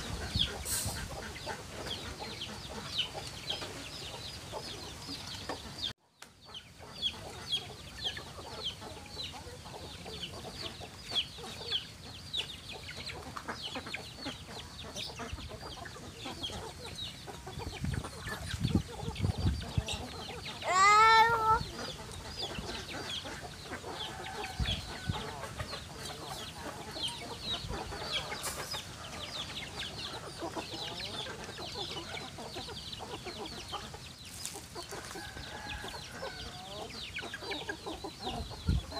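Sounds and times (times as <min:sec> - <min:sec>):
chicks peeping: 0:00.0 - 0:38.9
hens clucking: 0:00.0 - 0:38.9
loud chicken call: 0:20.6 - 0:21.7.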